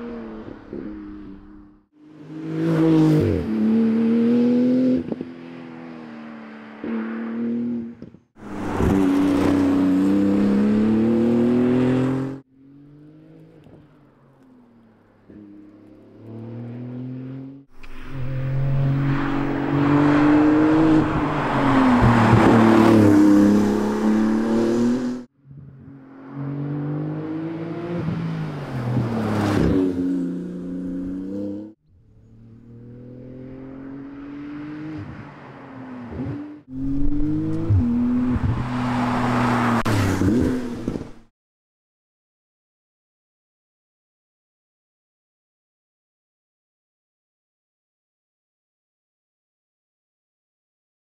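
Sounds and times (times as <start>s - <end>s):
sports car driving by revving: 15.2s - 41.2s.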